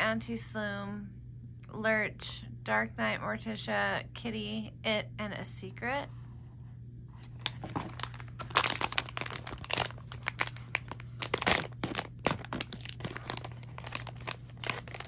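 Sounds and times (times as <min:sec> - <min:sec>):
packaging crinkling and tearing: 0:07.2 - 0:15.0.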